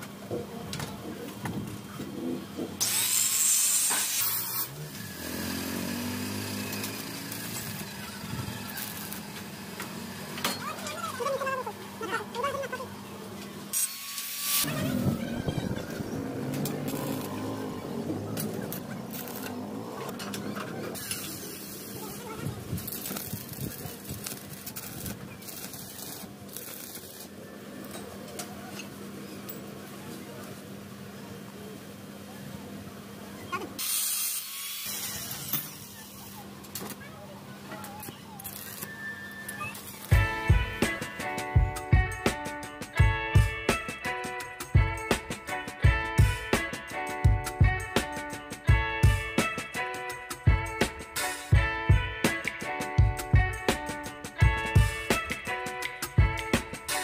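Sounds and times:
angle grinder grinding metal: 2.8s - 11.8s, 13.7s - 27.4s
welding arc crackling: 2.8s - 12.8s, 13.7s - 27.9s, 37.8s - 43.1s.

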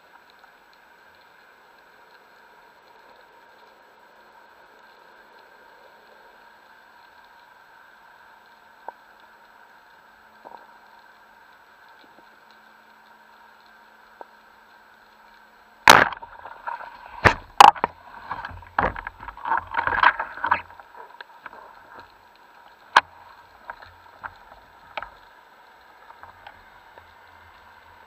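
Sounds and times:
steady faint hiss: 0.0s - 28.0s
spear shaft knocking and rattling: 15.9s - 20.8s.

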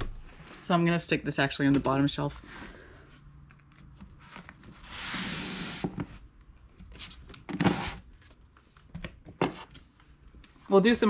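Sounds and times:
books sliding on shelf: 4.7s - 6.2s.

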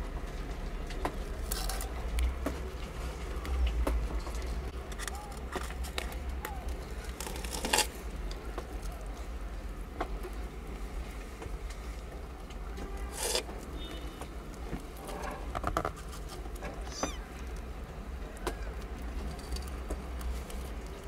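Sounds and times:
kitten high squeak: 16.8s - 17.3s.

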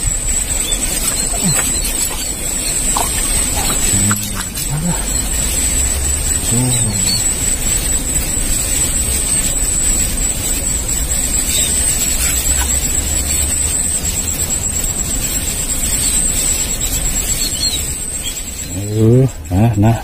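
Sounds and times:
high-pitched insect drone: 0.0s - 20.0s.

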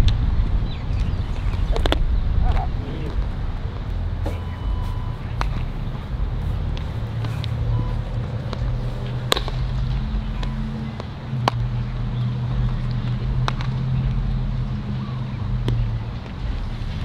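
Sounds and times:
steady low hum: 0.0s - 17.0s
baseballs popping into gloves: 1.0s - 4.5s, 8.4s - 14.3s, 15.4s - 16.4s.

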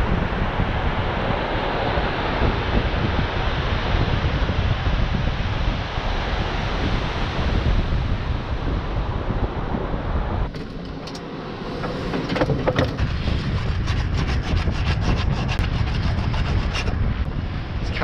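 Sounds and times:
wind buffeting microphone: 0.0s - 18.0s
sharp clicks and knocks: 10.5s - 17.0s.

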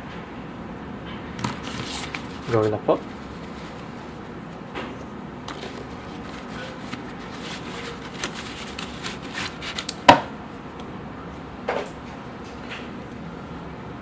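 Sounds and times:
nylon pouch rustling: 1.4s - 4.2s, 5.5s - 9.9s.

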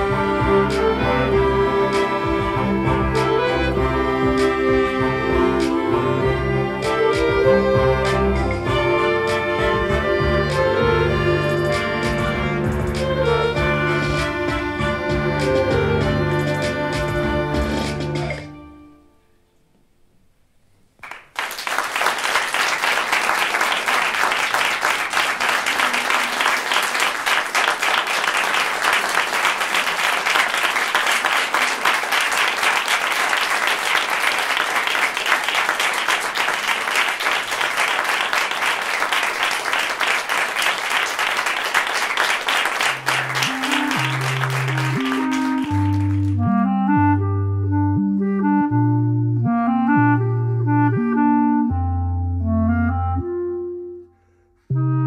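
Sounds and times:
low-pitched music notes: 0.0s - 19.3s, 42.9s - 55.0s
audience applauding: 21.0s - 46.4s.

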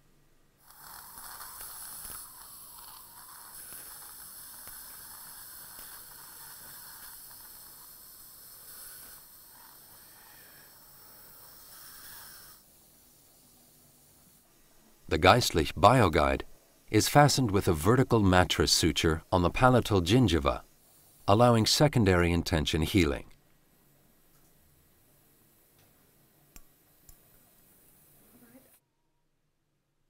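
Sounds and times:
suction tip hissing: 0.6s - 23.0s.

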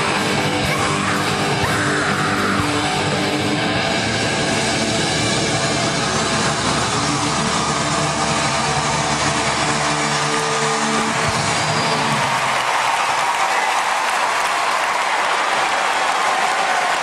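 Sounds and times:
distorted electric guitar: 0.0s - 12.4s
drum kit: 0.0s - 13.0s.

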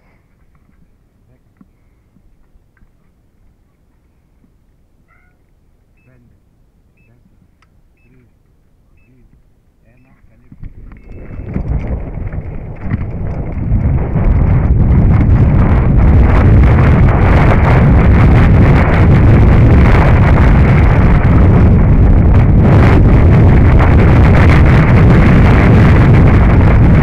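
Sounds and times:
wind buffeting microphone: 6.0s - 27.0s
mountain bike rattling and knocking: 10.5s - 14.8s.

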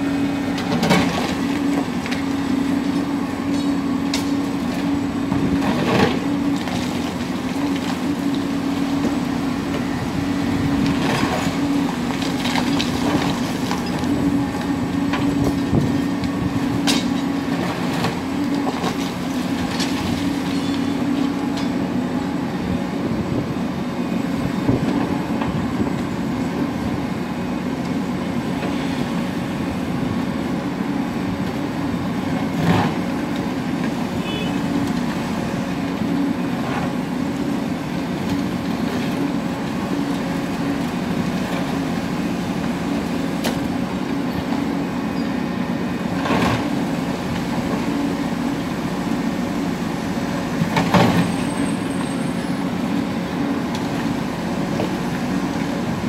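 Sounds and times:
excavator diesel engines running: 0.0s - 56.0s.

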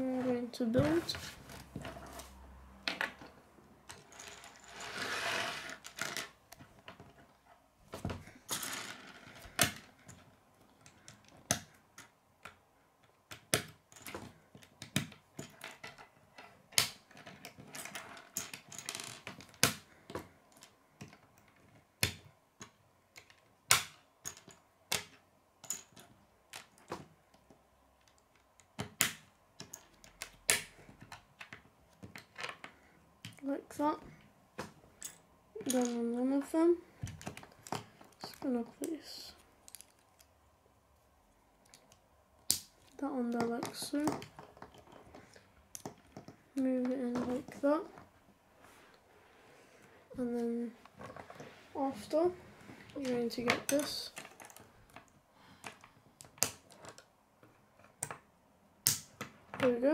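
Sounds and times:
plastic pieces clicking together: 8.5s - 33.4s, 37.0s - 40.3s, 41.6s - 46.4s
loose pieces rustling: 36.9s - 42.0s.

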